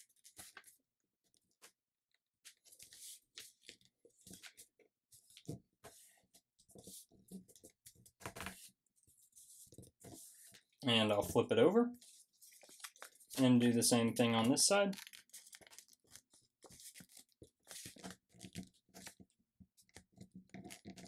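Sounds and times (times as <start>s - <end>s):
paper rustling and scraping: 2.5s - 6.1s, 6.7s - 11.4s, 12.0s - 19.2s.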